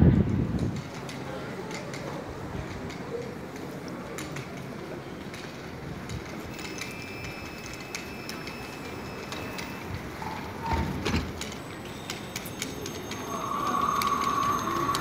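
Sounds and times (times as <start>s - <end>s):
street noise: 0.0s - 15.0s
tram electrical whine: 6.4s - 15.0s.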